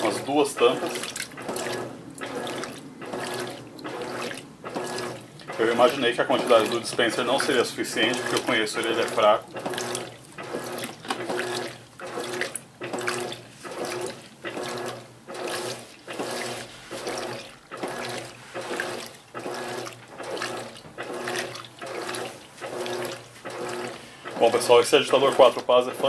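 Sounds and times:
washing machine motor hum: 0.0 - 26.0
washing machine water sloshing: 0.0 - 26.0.

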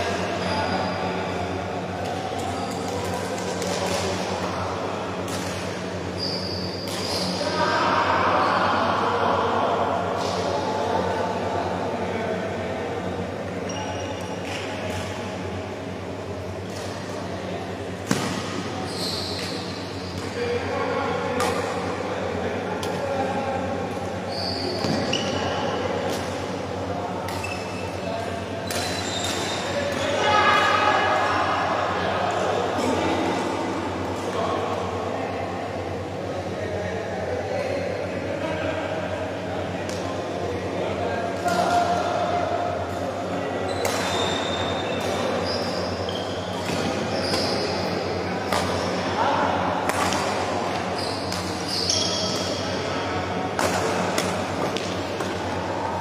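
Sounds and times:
steady low hum: 0.0 - 56.0
shoes squeaking on court floor: 6.1 - 7.4, 18.2 - 20.3, 24.2 - 25.6, 27.3 - 28.0, 28.7 - 30.2, 43.7 - 48.0, 50.8 - 52.7
shoes squeaking on floor: 6.2 - 7.4, 18.8 - 20.1, 24.3 - 25.5, 47.1 - 47.8, 51.0 - 52.4
racket hitting shuttlecock: 18.0 - 18.6, 53.5 - 55.4.

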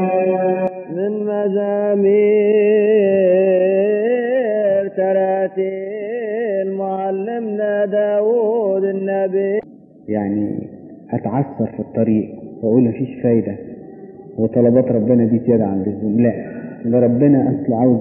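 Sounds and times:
person chanting a hymn: 0.0 - 9.6.

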